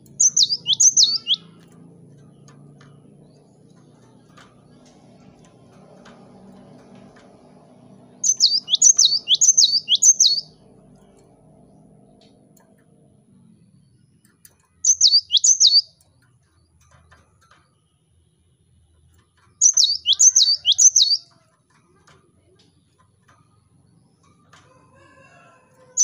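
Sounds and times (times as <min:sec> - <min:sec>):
bird singing sharp notes: 0:00.0 - 0:01.7, 0:08.2 - 0:10.6, 0:14.8 - 0:16.0, 0:19.6 - 0:21.3.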